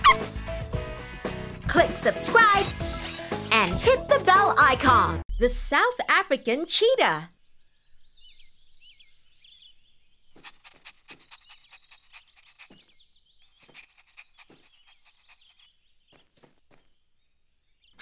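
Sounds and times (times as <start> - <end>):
birds chirping: 5.3 - 18.0.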